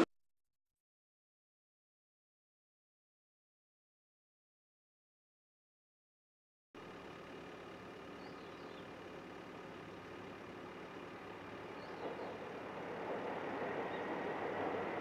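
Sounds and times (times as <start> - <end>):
diesel engine hum: 6.8 - 15.0
wheel-on-rail rumble: 6.8 - 15.0.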